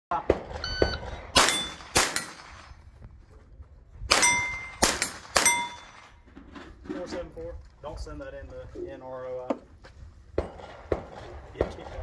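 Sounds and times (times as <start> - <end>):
rifle shots: 0.2 - 2.7, 4.1 - 6.1
steel plate ringing: 5.4 - 6.1.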